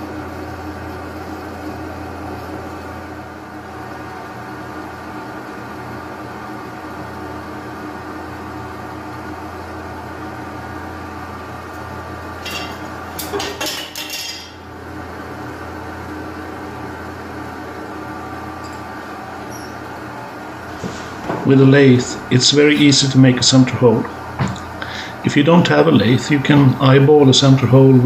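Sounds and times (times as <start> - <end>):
lathe motor humming: 0.0 - 13.4, 14.5 - 28.0.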